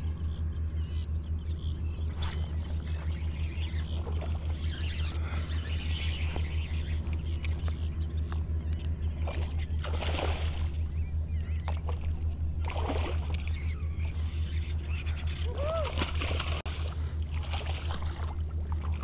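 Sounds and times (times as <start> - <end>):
steady low hum: 0.0 - 19.0
fish splashing in water: 9.2 - 10.8, 11.7 - 13.5, 15.6 - 19.0.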